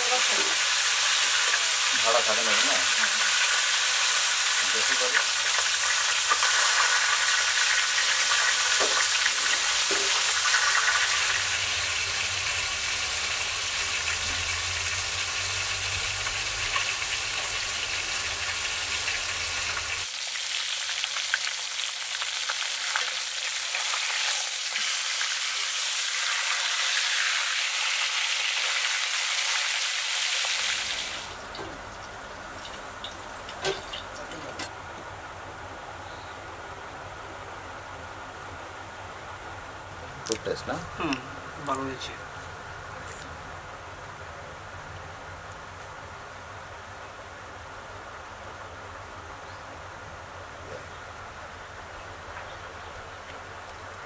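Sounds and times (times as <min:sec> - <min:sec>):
fish sizzling in hot oil: 0:00.0 - 0:34.3.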